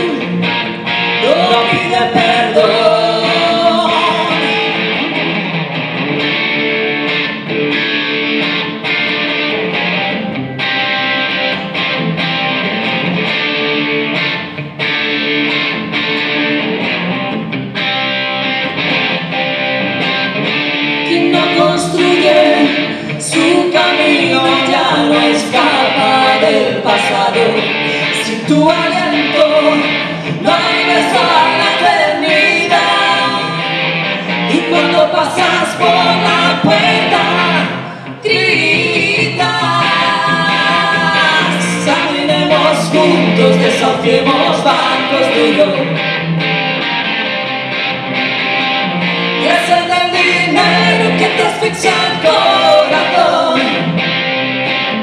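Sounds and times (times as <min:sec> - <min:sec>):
woman singing: 0:00.0 - 0:00.6, 0:01.2 - 0:05.0, 0:21.0 - 0:33.7, 0:34.4 - 0:46.0, 0:49.4 - 0:53.9
electric guitar strummed chords: 0:00.0 - 0:55.0.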